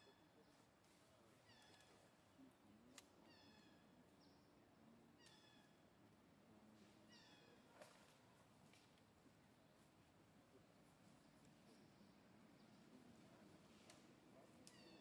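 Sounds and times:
soft clicks: 0:02.9 - 0:03.1.

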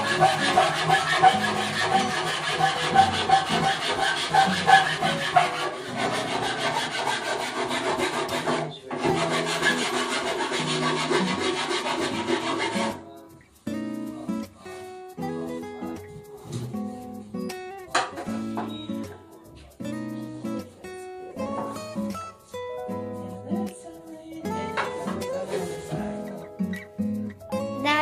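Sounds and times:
tool scraping board edge: 0:00.0 - 0:13.0.

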